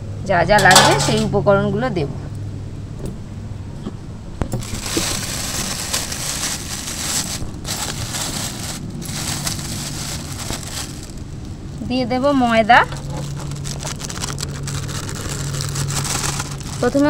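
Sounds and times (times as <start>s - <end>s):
plastic bag crinkling: 4.6s - 11.5s, 12.8s - 17.0s.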